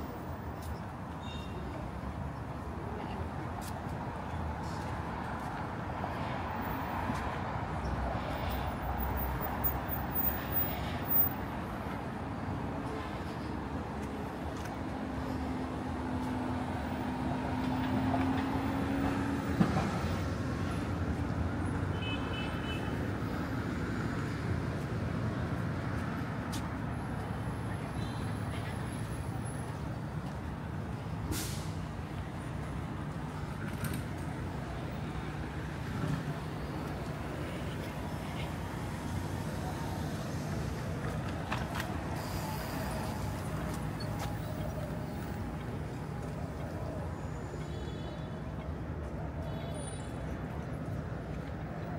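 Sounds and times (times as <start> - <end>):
low rumble of traffic: 0.0 - 51.9
passing cars rumble: 4.5 - 21.9.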